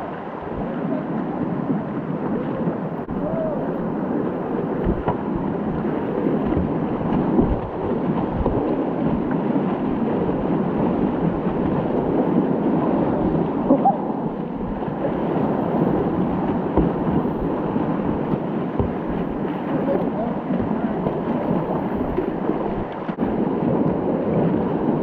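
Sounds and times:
water rushing and splashing: 0.0s - 25.0s
low thumps: 4.8s - 5.8s, 16.3s - 19.5s.

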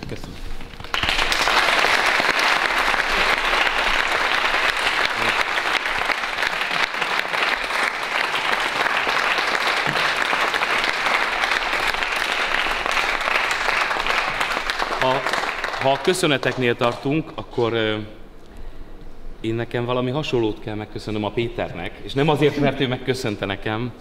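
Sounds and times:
small crowd applauding: 0.6s - 17.2s.

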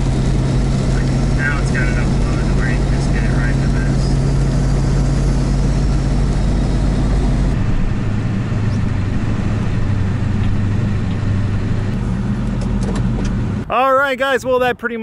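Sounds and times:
diesel truck engine under load: 0.0s - 13.7s.

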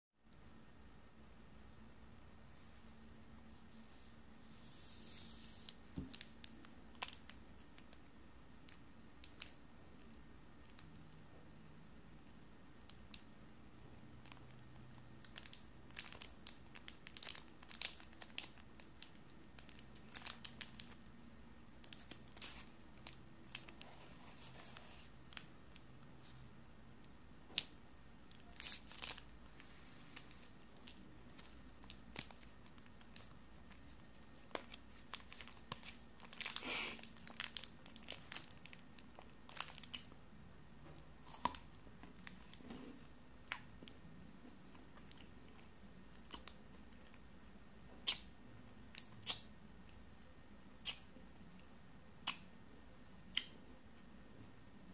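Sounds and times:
plastic wrapper crinkling: 5.6s - 9.6s, 14.2s - 21.1s, 21.8s - 25.8s, 28.3s - 40.2s.

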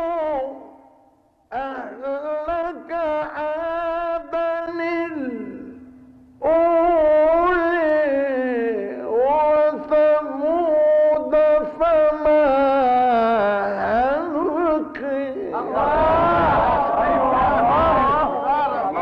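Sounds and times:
man chanting melodically: 0.0s - 0.9s, 1.5s - 19.0s.

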